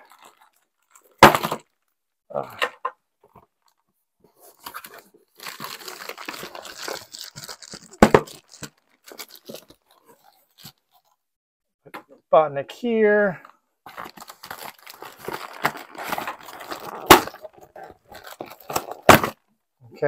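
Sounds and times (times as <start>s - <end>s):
plastic bags crinkling: 0.0s - 1.2s, 4.7s - 11.1s, 13.9s - 19.4s
cardboard rustling and tearing: 4.5s - 11.1s, 13.9s - 19.4s.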